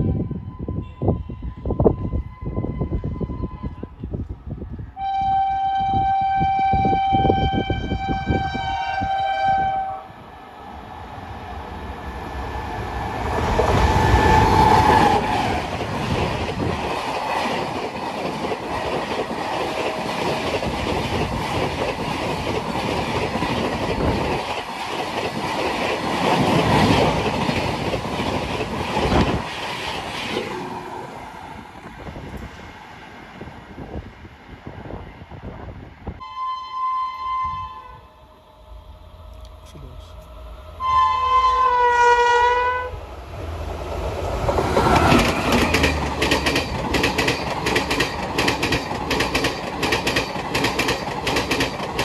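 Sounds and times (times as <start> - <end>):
train horn steady tone: 0.0 - 4.2, 5.0 - 10.2, 36.2 - 43.0
train rushing past: 1.7 - 52.0.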